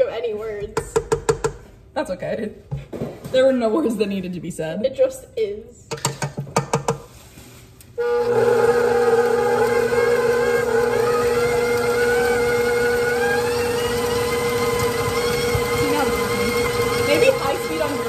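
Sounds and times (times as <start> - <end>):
stand mixer motor whine: 8.0 - 18.0.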